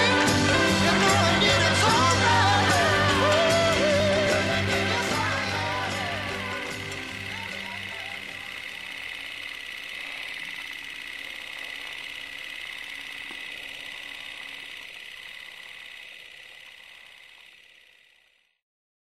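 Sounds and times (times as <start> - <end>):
film projector whirring and rattling: 0.0 - 18.6.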